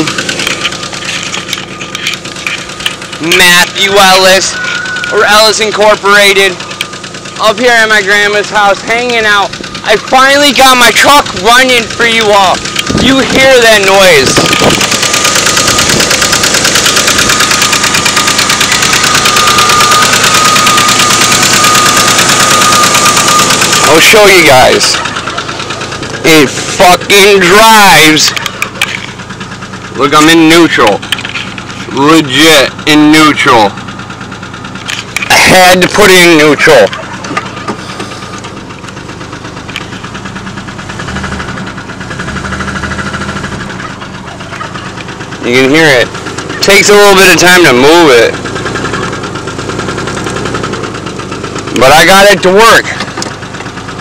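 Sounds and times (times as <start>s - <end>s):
high engine whine: 0.0s - 54.0s
truck engine knocking: 0.0s - 54.0s.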